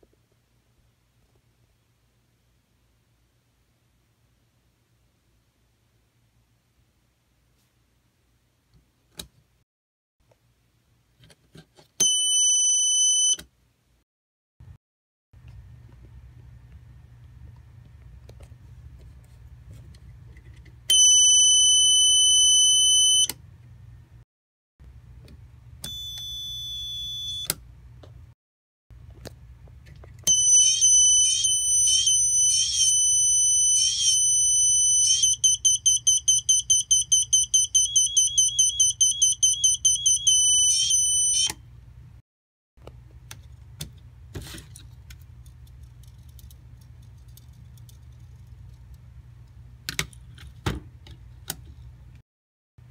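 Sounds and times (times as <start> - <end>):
electronic buzzer beeping: 20.9 - 23.3, 30.3 - 41.5.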